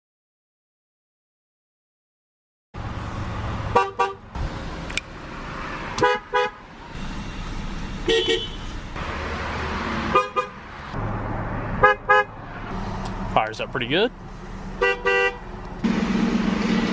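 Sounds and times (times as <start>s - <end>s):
car horn short beeps: 8.0s - 8.7s, 14.8s - 15.4s.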